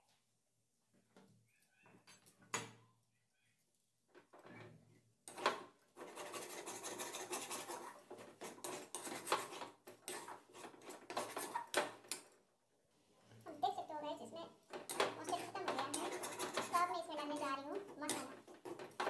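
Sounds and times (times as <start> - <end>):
metal ladle scraping a pan: 5.3 - 11.8, 14.8 - 19.0.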